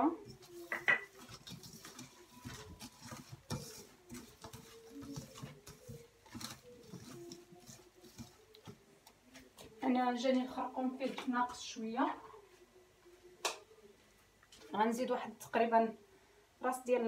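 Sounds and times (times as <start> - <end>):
paste squelching and scraping in pan: 0.2 - 10.7.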